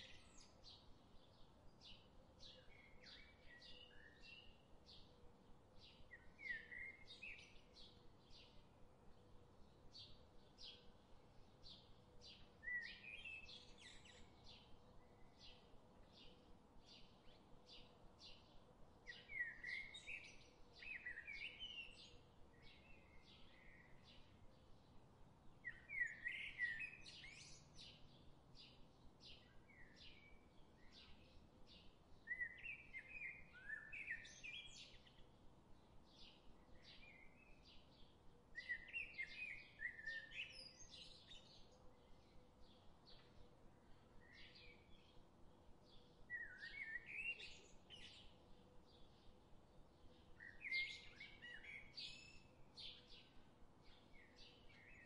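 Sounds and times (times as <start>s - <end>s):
warbled bird song: 0.0s - 55.0s
bird chirping: 9.6s - 55.0s.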